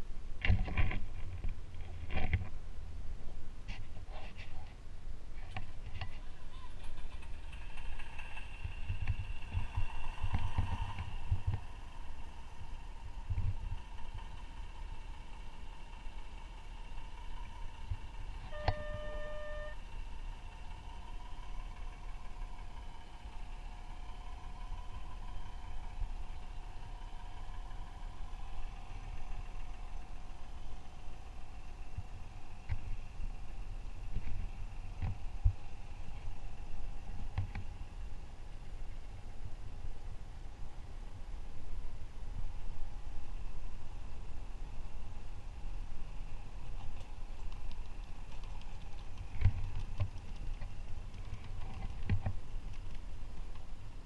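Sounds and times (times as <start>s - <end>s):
model locomotive whine: 6.3s - 53.0s
model train motor whine: 13.8s - 33.6s
model train clicks: 46.6s - 53.7s.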